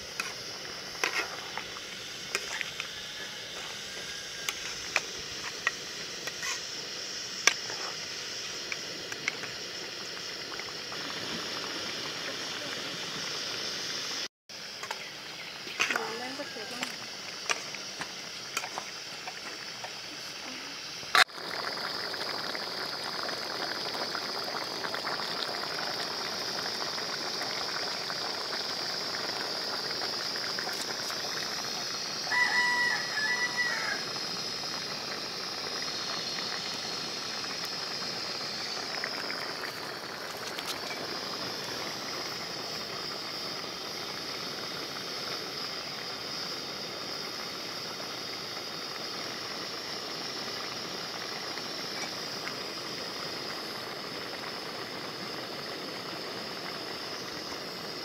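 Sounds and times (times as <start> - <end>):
high insect drone: 0.0 - 58.0
steady hiss: 0.0 - 58.0
rooster crowing: 32.2 - 34.2.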